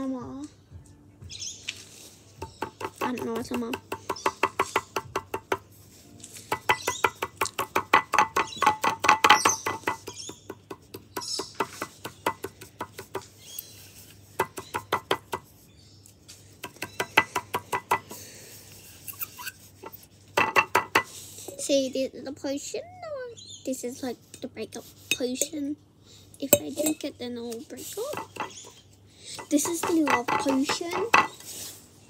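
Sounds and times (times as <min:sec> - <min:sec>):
rapid tapping and clinking: 0:29.4 - 0:31.3.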